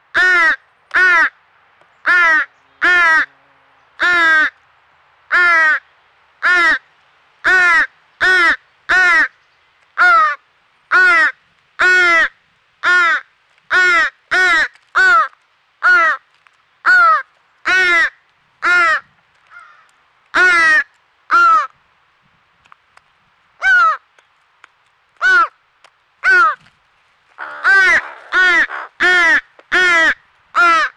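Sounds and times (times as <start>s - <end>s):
young crow cawing: 0.1s - 1.4s, 2.0s - 3.3s, 4.0s - 4.6s, 5.3s - 9.4s, 10.0s - 21.8s, 23.6s - 24.1s, 25.2s - 25.6s, 26.2s - 26.7s, 27.4s - 30.9s.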